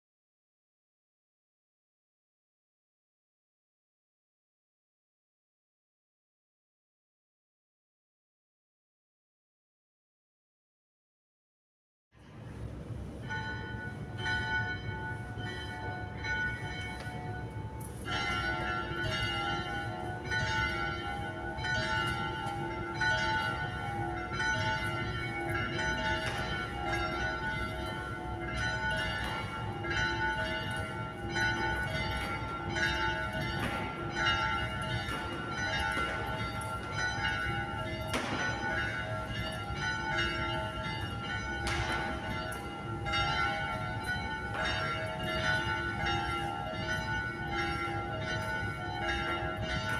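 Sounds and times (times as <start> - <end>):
church bells ringing: 12.7 - 49.9.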